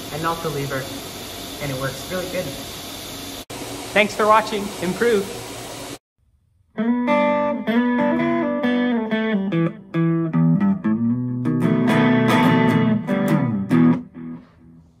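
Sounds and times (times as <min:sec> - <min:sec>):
plucked guitar notes: 0:06.8 - 0:14.6.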